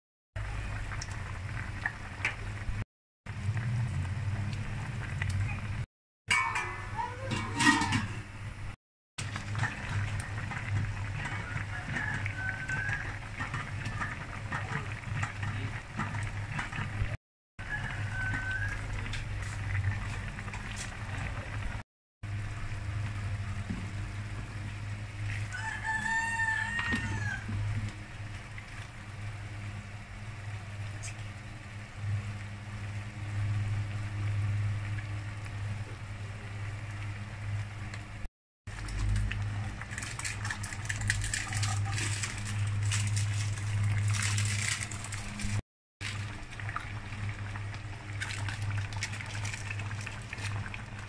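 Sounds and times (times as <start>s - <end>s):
stew bubbling and crackling: 0.4s - 51.0s
rooster crowing: 11.2s - 13.5s, 17.6s - 19.1s, 25.4s - 27.6s.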